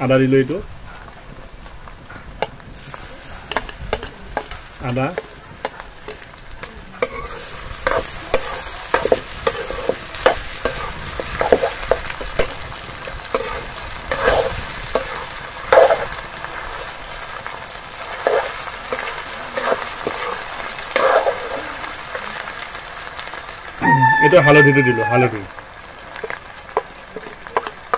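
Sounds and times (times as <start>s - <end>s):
meat sizzling in fat: 0.0s - 27.9s
metal spoon scraping pan: 2.4s - 16.9s, 18.1s - 21.8s, 26.2s - 27.9s.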